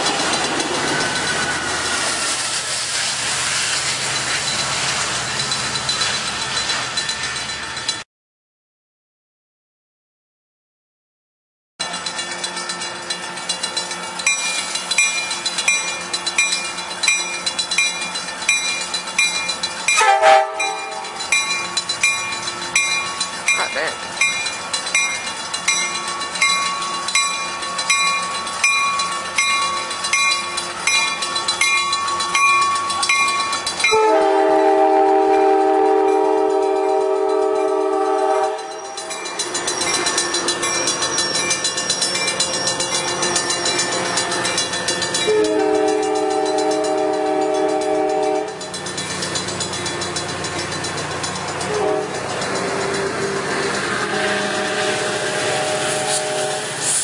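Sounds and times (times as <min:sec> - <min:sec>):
crossing warning bell clanging: 0:00.0 - 0:08.0, 0:11.8 - 0:57.0
train cars rumbling: 0:00.0 - 0:08.0, 0:11.8 - 0:57.0
train air horn blast: 0:20.0 - 0:21.1, 0:33.9 - 0:38.8, 0:45.3 - 0:48.6, 0:51.7 - 0:52.2, 0:53.2 - 0:57.0.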